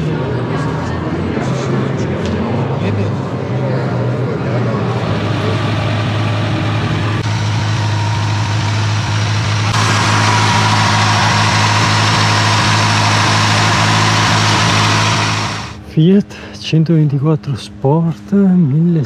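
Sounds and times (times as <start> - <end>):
engine idling: 4.9 - 15.8.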